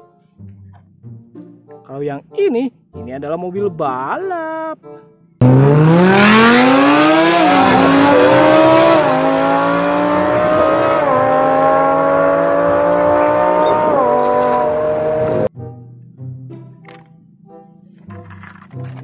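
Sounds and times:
engine upshifts: 5.4 - 15.5
sports car engines accelerating: 5.4 - 15.5.

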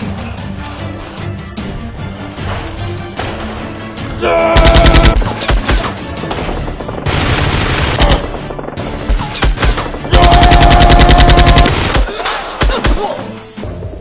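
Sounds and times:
background music: 0.0 - 14.0
automatic gunfire bursts: 4.6 - 5.7, 7.0 - 8.3, 10.1 - 12.1.

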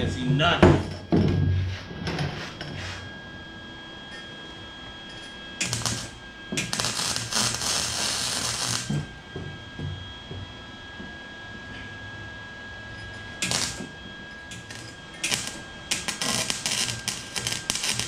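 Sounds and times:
welder arc crackling: 5.6 - 9.0, 13.4 - 18.0.

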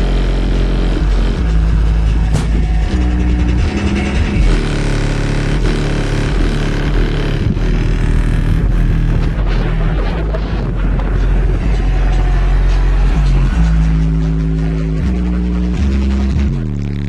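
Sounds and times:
bass-heavy music through subwoofer: 0.0 - 17.0.

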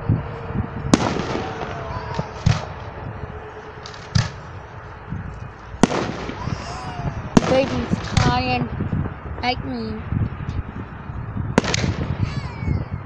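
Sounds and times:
fireworks bangs: 0.2 - 13.0
small fireworks pops: 1.0 - 2.7, 3.8 - 4.5, 7.4 - 8.6, 11.6 - 12.4.

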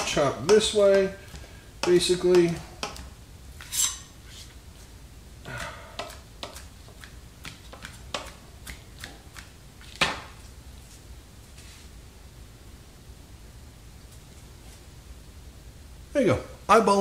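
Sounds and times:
knife chopping on plastic board: 0.0 - 3.1, 5.6 - 10.2.

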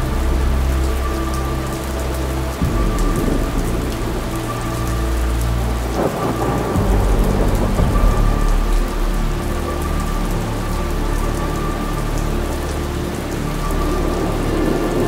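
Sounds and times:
steady rain: 0.0 - 15.0
rolling thunder: 2.6 - 4.4, 5.6 - 9.1.

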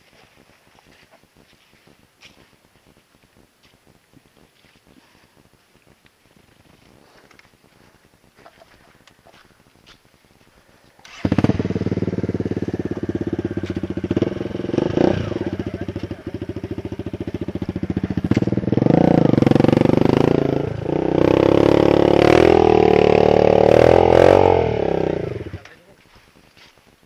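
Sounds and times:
dirt bike engines revving: 11.0 - 26.0.

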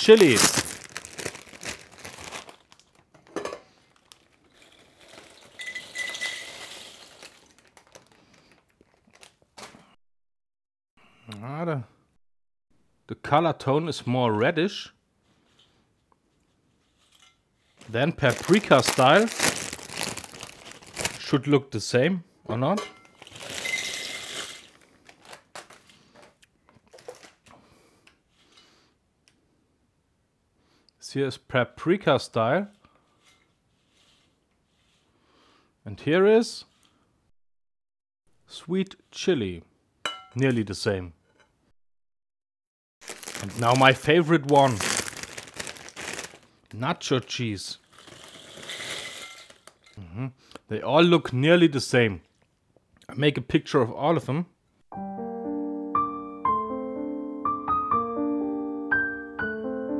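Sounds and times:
foil bag crinkling: 0.0 - 9.8, 17.8 - 21.4, 23.0 - 27.4, 43.0 - 50.0.

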